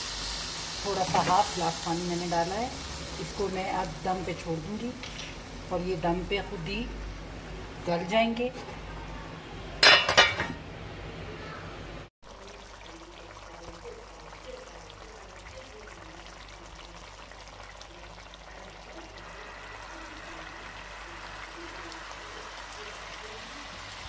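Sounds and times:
gravy simmering with small pops: 0:12.3 - 0:23.3.

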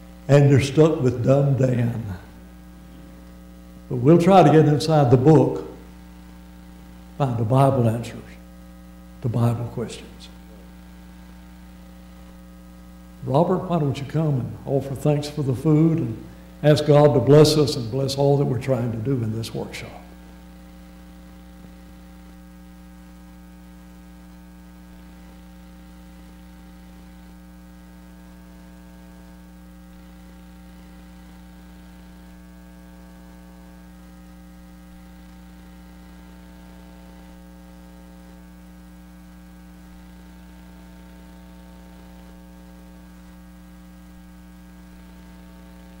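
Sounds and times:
electrical mains hum: 0:00.0 - 0:46.0.

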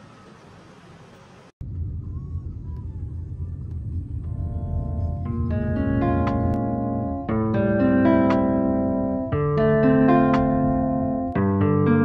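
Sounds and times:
steady low rumble: 0:01.6 - 0:12.0
plucked string music: 0:04.6 - 0:12.0.

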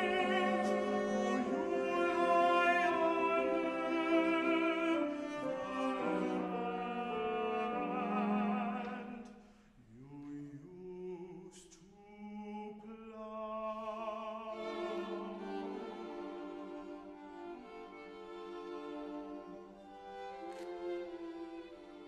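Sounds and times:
tenor singing with vibrato: 0:00.0 - 0:09.3
string quartet playing: 0:00.0 - 0:09.4, 0:13.8 - 0:22.0.

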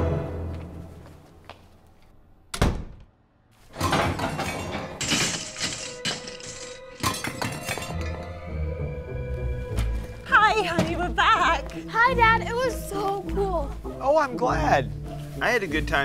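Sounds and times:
door shutting thud: 0:02.5 - 0:03.1
pots and pans clattering: 0:03.8 - 0:08.2.

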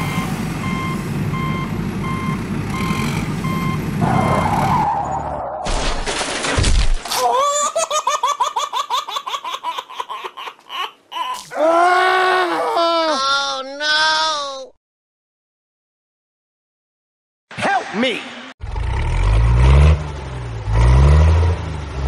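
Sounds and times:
truck reversing beeper: 0:00.0 - 0:05.5.

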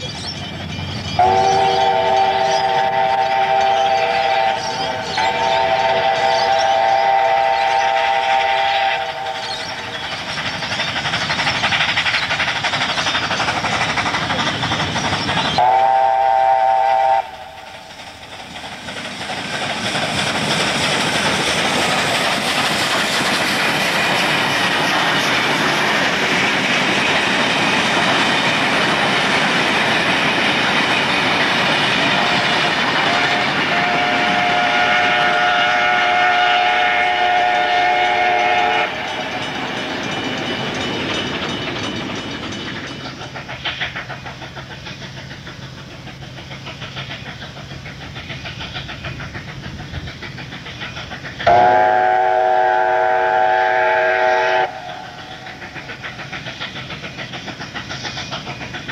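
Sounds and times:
approaching train noise: 0:00.0 - 0:58.9
steam locomotive whistle: 0:01.2 - 0:09.9, 0:15.6 - 0:17.9, 0:33.1 - 0:39.4, 0:51.4 - 0:55.4.

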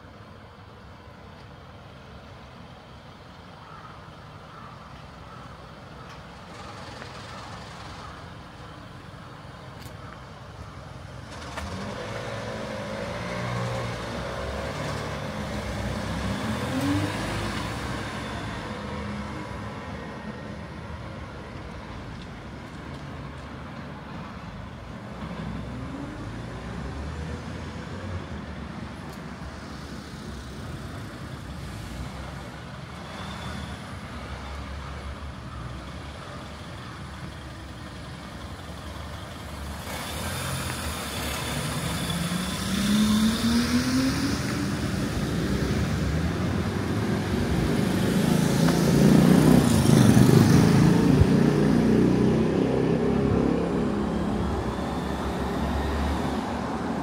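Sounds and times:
vehicle engine passing: 0:39.8 - 0:56.7.

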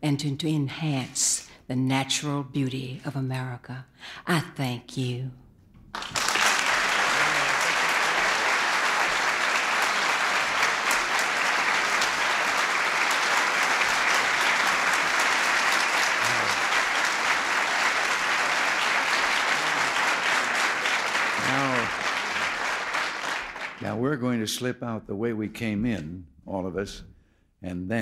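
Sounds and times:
audience applauding: 0:05.9 - 0:24.1.

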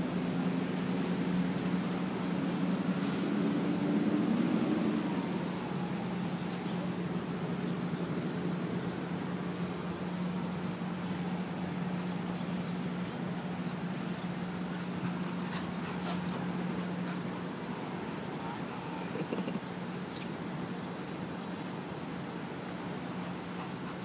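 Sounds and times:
outdoor background hiss: 0:00.0 - 0:24.0
dogs playing on grass: 0:00.1 - 0:04.6, 0:08.8 - 0:24.0.

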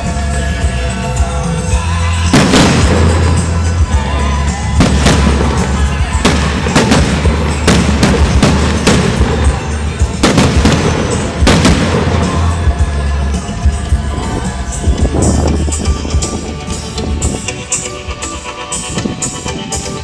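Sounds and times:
fireworks bangs: 0:02.2 - 0:13.4.

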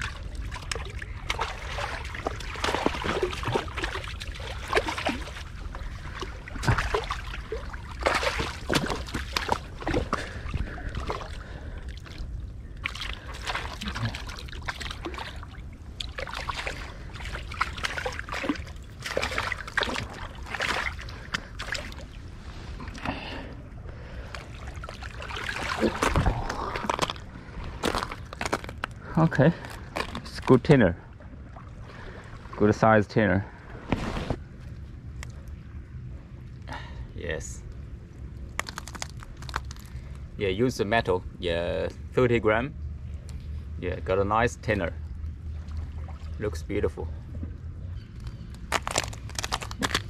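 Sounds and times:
water sloshing against rock: 0:00.0 - 0:32.8
steady low rumble: 0:00.0 - 0:50.0
fish thrashing on rocks: 0:25.3 - 0:29.0, 0:38.5 - 0:40.0, 0:48.6 - 0:50.0.

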